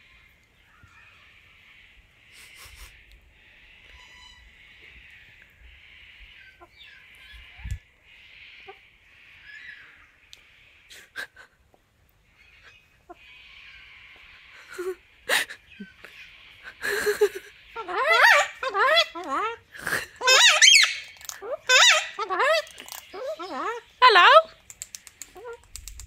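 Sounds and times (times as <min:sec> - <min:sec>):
birds wheezy hissing chatter: 0:01.1 - 0:25.7
sharp clicks: 0:24.6 - 0:26.0.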